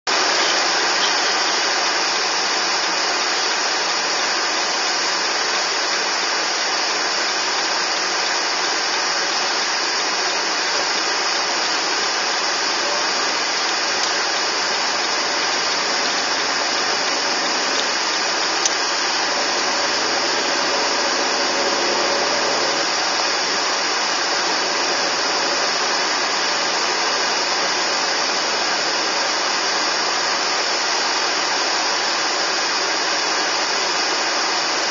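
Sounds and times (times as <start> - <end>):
car interior hiss: 0.1 - 34.9
car engine rising in pitch: 15.2 - 28.0.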